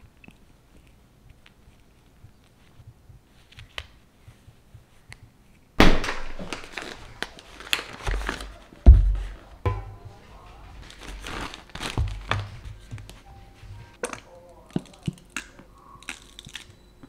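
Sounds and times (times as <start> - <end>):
plastic packaging crinkling: 6.0 - 8.8, 10.7 - 13.2
heavy thud: 8.9 - 10.2.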